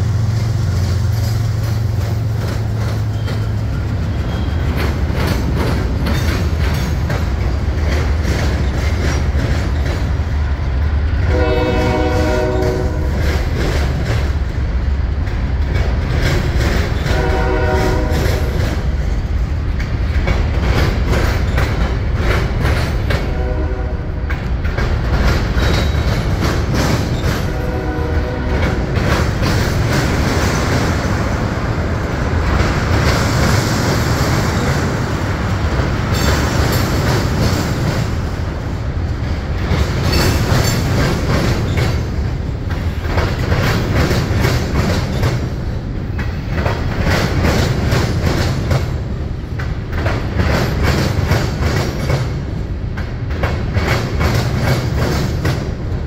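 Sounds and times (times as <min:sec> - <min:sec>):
diesel locomotive rumbling: 0:00.0 - 0:56.0
train wheels clattering over rails: 0:00.0 - 0:56.0
locomotive horn blasts: 0:11.2 - 0:13.2, 0:17.1 - 0:18.5, 0:23.3 - 0:24.2, 0:27.4 - 0:28.9.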